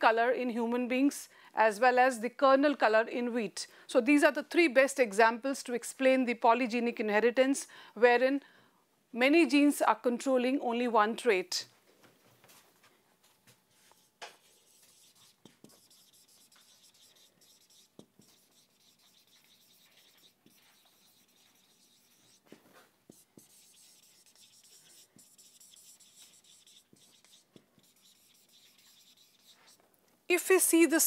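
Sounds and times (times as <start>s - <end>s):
marker pen scratching on whiteboard: 13.7s - 29.8s.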